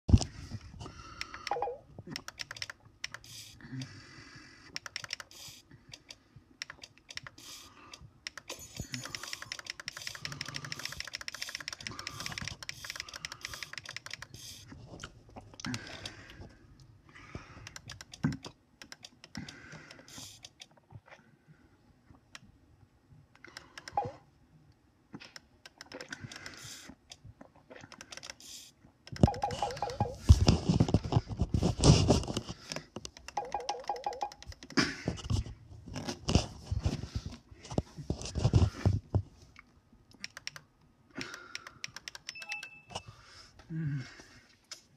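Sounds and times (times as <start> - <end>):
laptop touchpad and key clicks: 1.2 - 3.2, 4.7 - 5.3, 5.9 - 7.4, 8.2 - 14.4, 17.6 - 20.7, 40.1 - 42.8.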